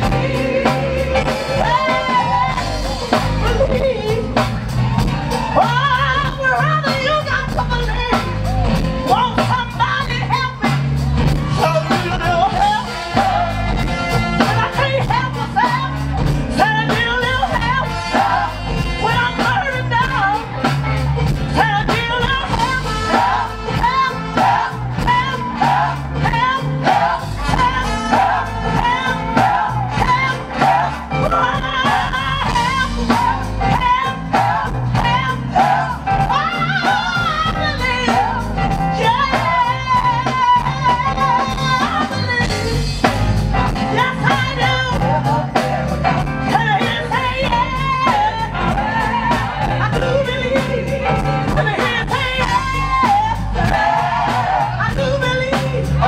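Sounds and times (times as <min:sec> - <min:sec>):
amplified band with steady beat: 0:00.0 - 0:56.0
woman singing lead: 0:00.0 - 0:56.0
choir singing: 0:12.8 - 0:14.0, 0:24.2 - 0:37.3, 0:52.7 - 0:55.3.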